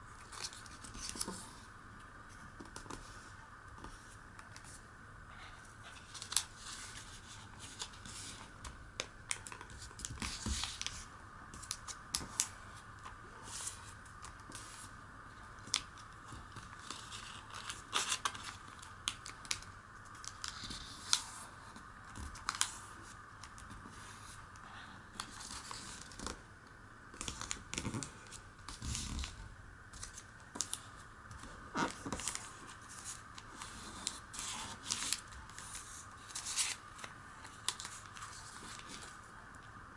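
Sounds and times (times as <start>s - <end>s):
paper being folded and creased: 0.2s - 1.6s, 5.9s - 12.6s, 15.7s - 24.4s, 25.1s - 26.4s, 27.1s - 39.2s.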